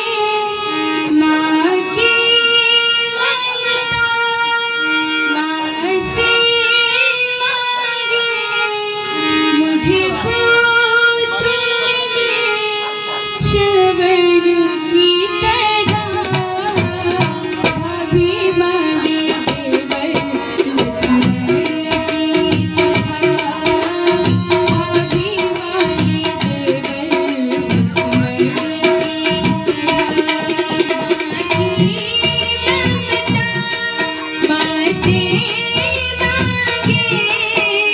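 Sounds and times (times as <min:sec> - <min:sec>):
harmonium melody: 0:00.0 - 0:37.9
hand drum rhythm: 0:15.5 - 0:37.9.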